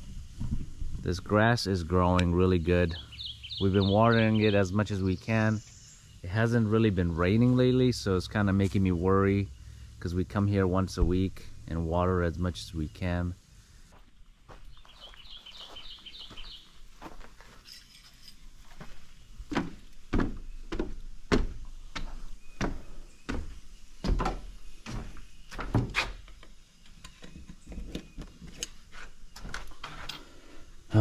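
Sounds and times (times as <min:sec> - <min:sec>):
bird chirping: 0:02.4 - 0:13.4, 0:14.6 - 0:28.6
footsteps on wooden stairs: 0:13.9 - 0:17.6, 0:18.7 - 0:26.4.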